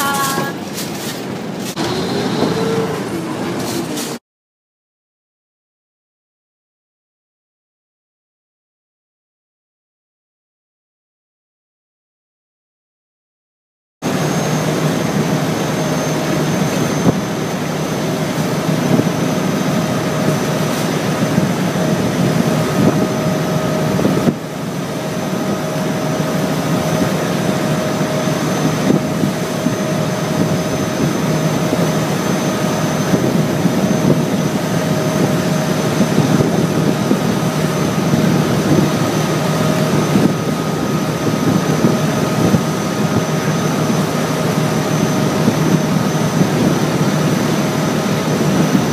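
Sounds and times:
boat engine drone with whine: 0.0s - 4.2s, 14.0s - 48.9s
water rushing past hull: 14.1s - 48.9s.

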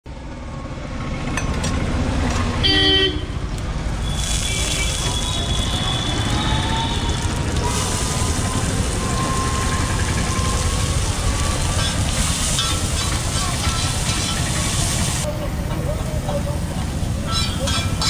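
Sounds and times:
vehicle horn toot: 2.6s - 3.4s, 4.0s - 8.4s
hot oil sizzling on a griddle: 4.0s - 15.3s.

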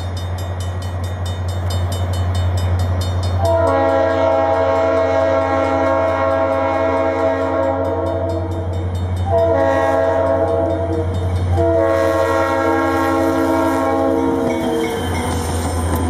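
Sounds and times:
train air horn blasts: 3.4s - 15.0s.

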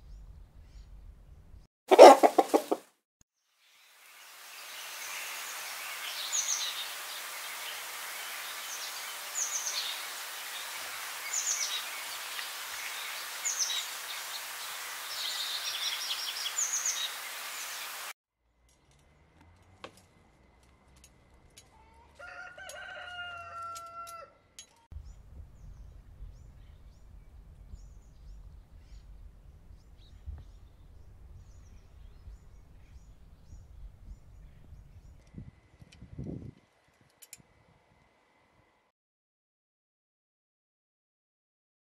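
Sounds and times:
low rumble: 0.0s - 1.6s, 25.0s - 35.0s
small birds chirping: 0.0s - 2.8s, 4.5s - 18.1s, 24.8s - 36.2s
chickens: 1.9s - 2.8s
rooster crowing: 1.9s - 2.8s, 22.2s - 24.4s
steady hiss: 3.6s - 18.1s.

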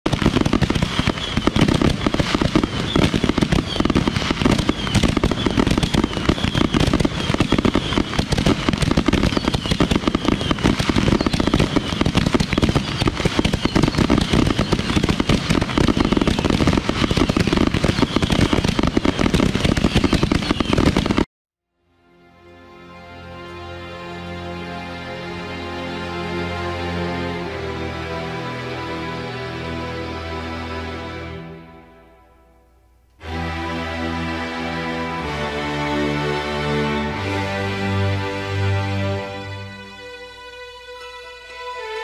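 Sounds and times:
fireworks crackling and popping: 0.1s - 21.3s.

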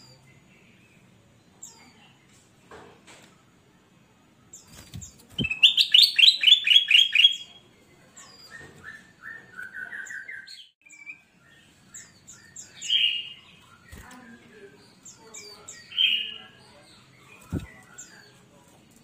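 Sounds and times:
bird singing: 4.4s - 18.6s
low thumps: 17.5s - 17.8s.

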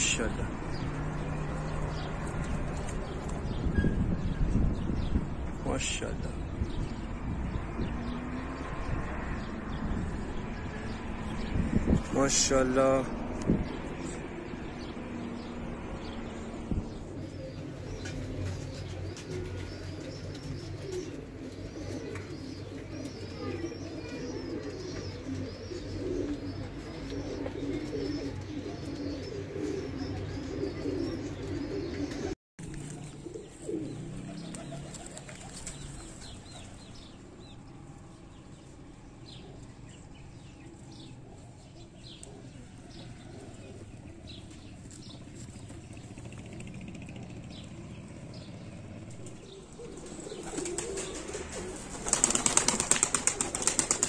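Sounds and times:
small birds chirping: 0.0s - 54.0s
pigeons cooing: 13.6s - 37.5s, 39.3s - 54.0s.

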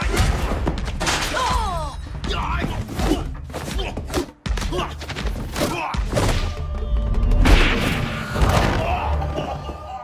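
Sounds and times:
film music score: 0.0s - 10.0s.

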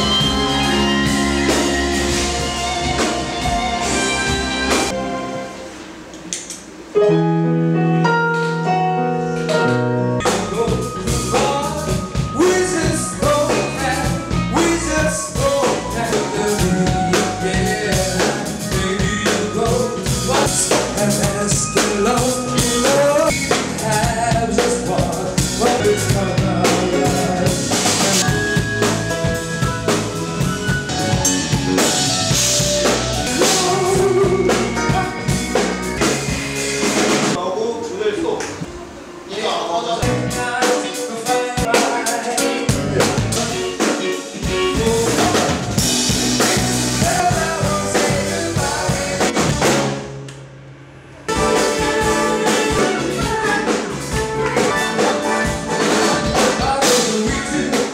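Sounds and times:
band music: 0.0s - 57.9s
drums: 0.0s - 57.9s
keyboard chords: 0.0s - 57.9s
man singing: 10.2s - 28.9s, 33.2s - 35.3s, 39.9s - 49.7s, 51.3s - 57.9s.

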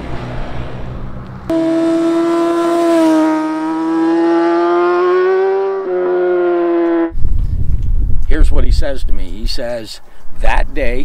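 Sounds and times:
motorcycle engine at high revs: 1.5s - 7.1s.

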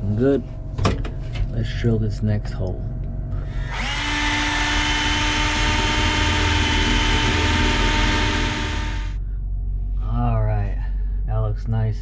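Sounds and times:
cordless drill boring sheet metal: 3.6s - 9.2s.

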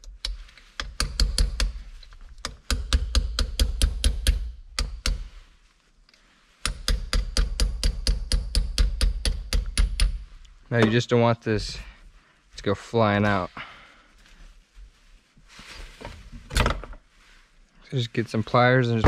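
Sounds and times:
hammer tapping metal punch: 6.6s - 10.2s.

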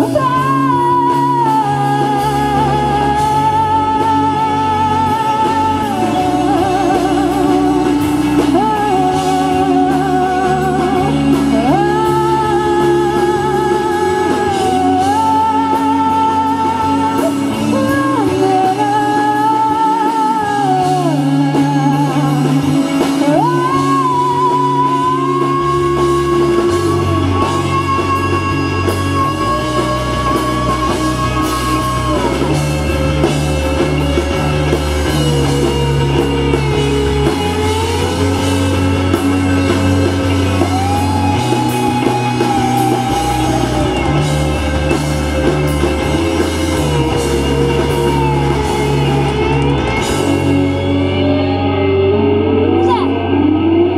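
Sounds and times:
drum kit: 0.0s - 53.9s
electric bass: 0.0s - 53.9s
electric guitar melody: 0.0s - 53.9s.

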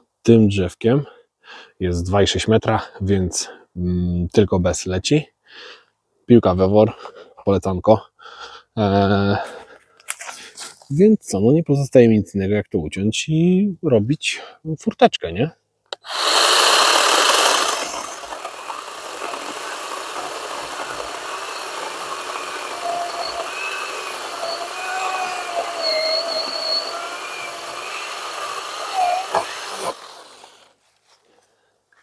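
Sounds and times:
power saw cutting: 15.9s - 30.8s.

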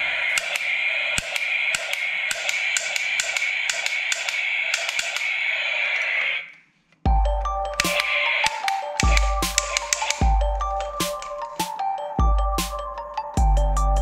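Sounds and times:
steady hiss: 0.0s - 6.6s
plastic toy gun clicks and taps: 0.4s - 5.3s, 7.8s - 10.2s.

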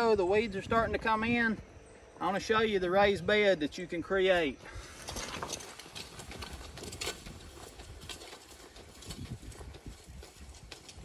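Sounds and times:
plow scraping through soil: 4.8s - 11.0s.

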